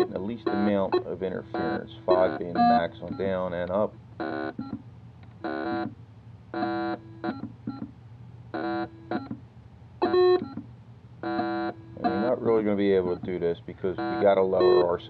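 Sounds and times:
metal detector electronic tones: 0:00.0 - 0:03.7, 0:11.2 - 0:13.4, 0:14.0 - 0:15.0
faint low hum: 0:00.0 - 0:15.0.

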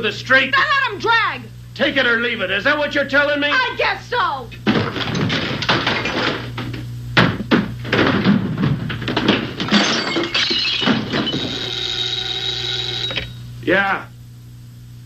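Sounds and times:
objects crashing and breaking: 0:04.7 - 0:06.5, 0:07.2 - 0:11.8
steady held tone: 0:10.1 - 0:14.0.

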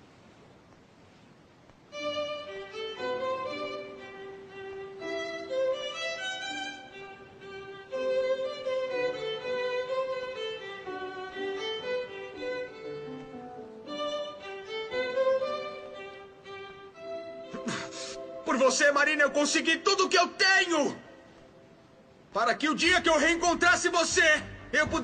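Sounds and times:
violin playing held notes: 0:01.9 - 0:19.8.

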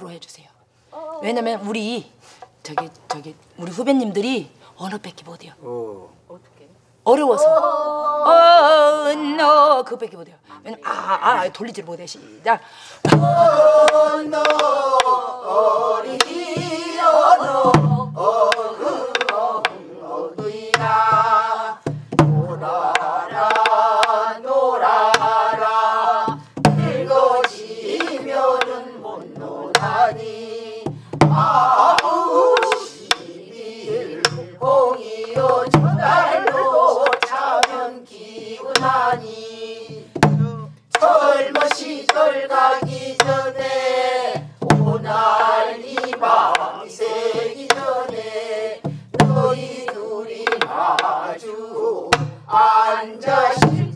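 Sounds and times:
group of voices singing folk song: 0:12.8 - 0:53.9
low barrel drum beats: 0:13.1 - 0:15.1, 0:16.0 - 0:37.8, 0:38.8 - 0:51.2, 0:52.0 - 0:53.9
drum stick clicks: 0:13.8 - 0:15.1, 0:18.5 - 0:19.8, 0:22.9 - 0:24.2, 0:27.4 - 0:28.8, 0:31.7 - 0:33.3, 0:34.2 - 0:34.5, 0:36.4 - 0:37.8, 0:38.7 - 0:39.1, 0:40.2 - 0:42.3, 0:45.8 - 0:46.7, 0:47.3 - 0:48.2, 0:48.8 - 0:51.2.

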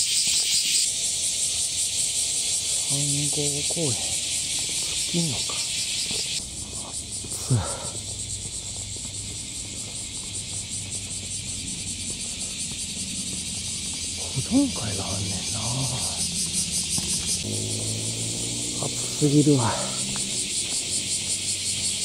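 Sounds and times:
cicadas buzzing: 0:00.0 - 0:22.0.

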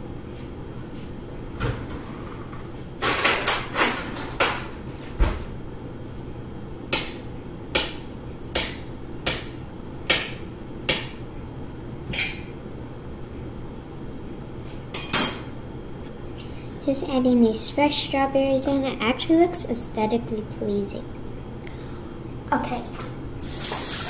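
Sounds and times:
utensil chopping on wooden board: 0:06.9 - 0:09.5, 0:10.1 - 0:11.1.

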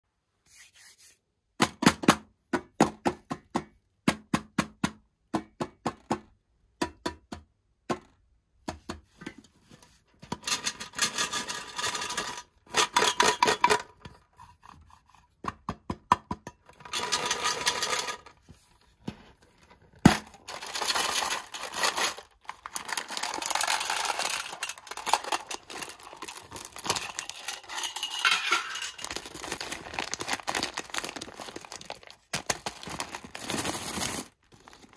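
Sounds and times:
drumming and scratching on tin lid: 0:10.2 - 0:15.7, 0:20.5 - 0:30.4
fingertips tapping metal tin lids: 0:12.1 - 0:14.2, 0:23.5 - 0:29.0
plastic bag crinkling: 0:20.2 - 0:34.9.

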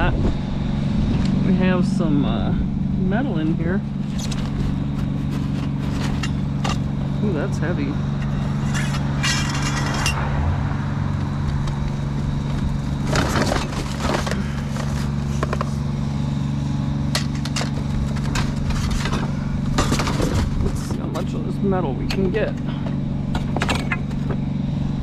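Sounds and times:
vehicle engine idling: 0:00.0 - 0:25.0
scrap metal clattering: 0:04.0 - 0:06.9, 0:08.2 - 0:10.2, 0:13.0 - 0:15.8, 0:17.1 - 0:21.4.

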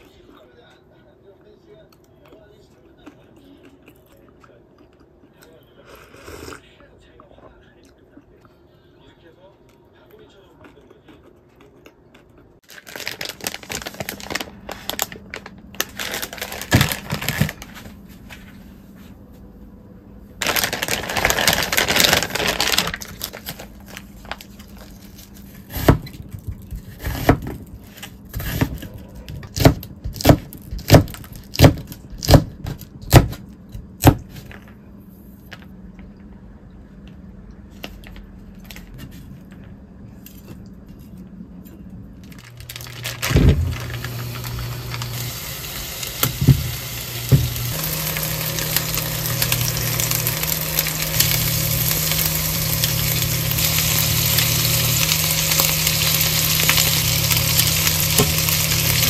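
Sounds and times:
knife chopping onion on board: 0:28.3 - 0:34.4.

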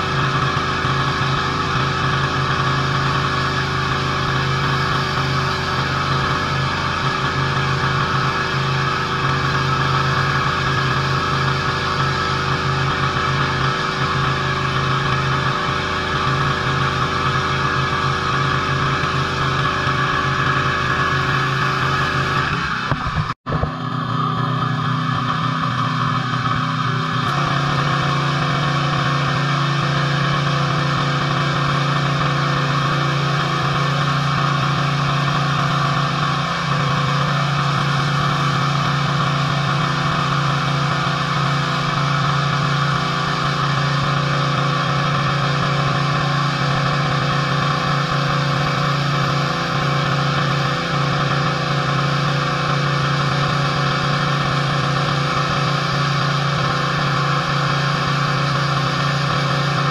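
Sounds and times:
pressure washer engine hum: 0:00.0 - 0:59.9.

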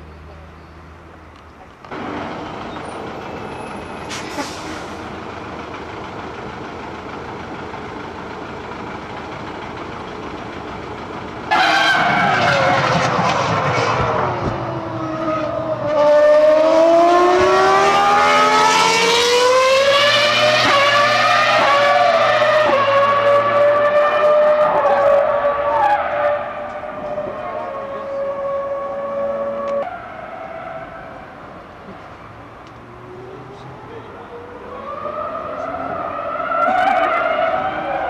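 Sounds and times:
racing car engine: 0:11.2 - 0:38.0.

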